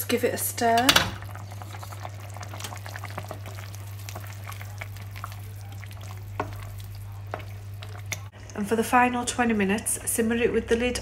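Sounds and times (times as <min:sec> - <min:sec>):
wooden spoon stirring sauce: 0:01.2 - 0:08.3
thick sauce bubbling in a pot: 0:01.2 - 0:08.4.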